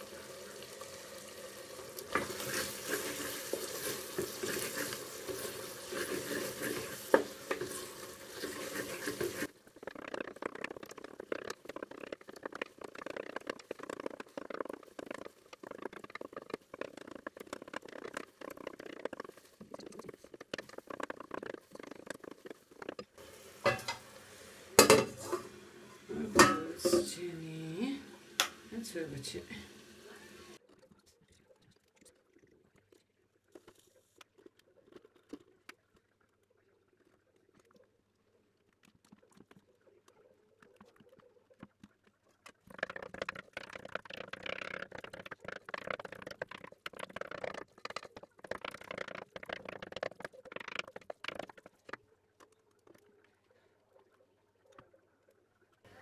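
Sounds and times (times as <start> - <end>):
spoon stirring thick curry: 2.2 - 9.5
spoon knocking metal pot: 23.6 - 24.0, 24.8 - 25.5, 26.3 - 27.2.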